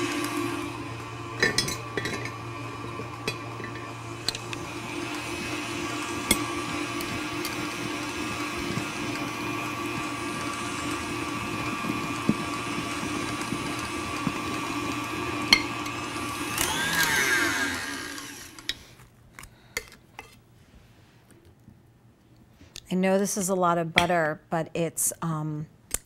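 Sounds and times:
stand mixer motor whining: 0.0 - 18.8.

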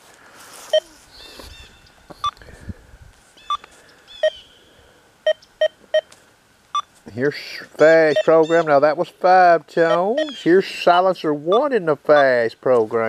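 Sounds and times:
metal detector beeps: 0.7 - 1.0, 5.2 - 6.1, 8.0 - 8.7, 9.8 - 10.4.

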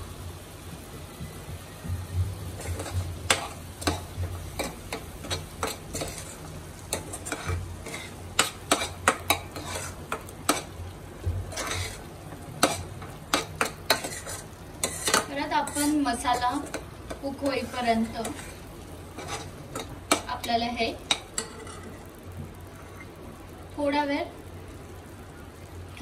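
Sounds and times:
paste sizzling in hot oil: 0.0 - 26.0
metal spoon scraping a pan: 2.6 - 10.9, 11.5 - 23.2.

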